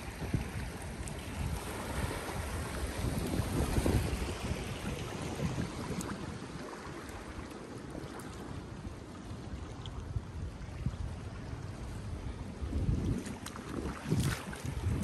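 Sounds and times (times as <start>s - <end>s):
wind buffeting microphone: 0.0s - 7.5s, 8.8s - 15.0s
small waves washing against rocks: 0.0s - 8.8s, 12.8s - 15.0s.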